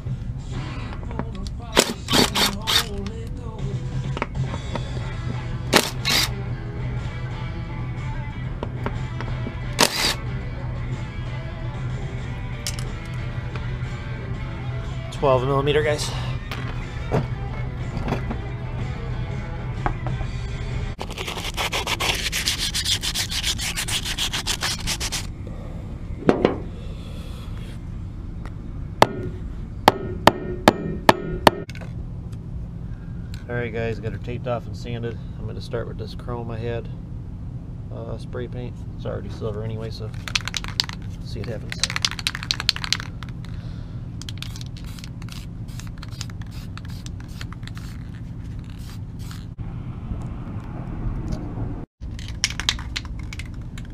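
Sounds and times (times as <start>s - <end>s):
sanding on steel wheel rim: 2.1s - 3.0s, 9.8s - 10.2s, 21.0s - 25.3s
spray can hissing: 9.8s - 10.2s, 44.2s - 49.5s
knock on wheel: 26.3s - 26.7s
hammer tapping on metal wheel: 29.9s - 31.7s.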